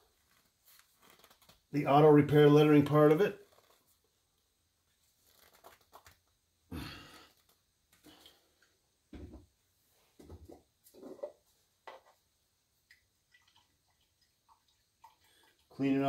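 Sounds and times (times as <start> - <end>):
breathy exhales and sighs: 6.7 - 7.4.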